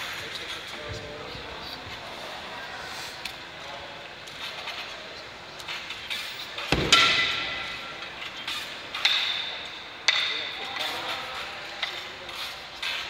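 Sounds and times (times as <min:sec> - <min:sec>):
high bar clanking: 0:05.8 - 0:10.6.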